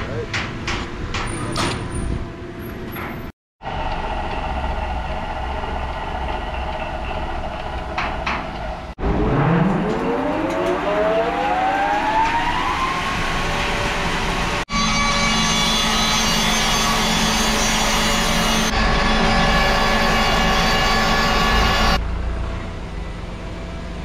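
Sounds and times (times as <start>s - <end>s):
saw drive whine rising: 9.0s - 22.0s.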